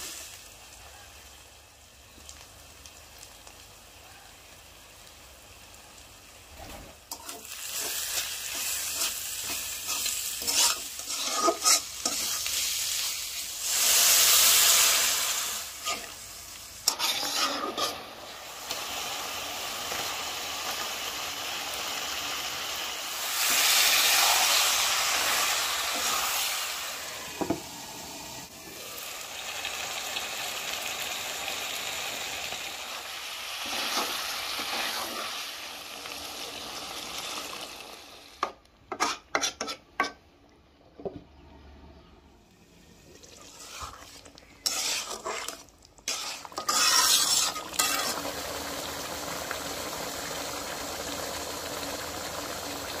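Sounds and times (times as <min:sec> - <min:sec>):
curry sizzling in a pan: 0:00.0 - 0:40.2, 0:43.2 - 0:53.0
metal spatula scraping: 0:07.1 - 0:13.2, 0:15.8 - 0:16.2, 0:16.8 - 0:18.1, 0:33.6 - 0:35.3, 0:38.9 - 0:40.2, 0:43.4 - 0:48.2.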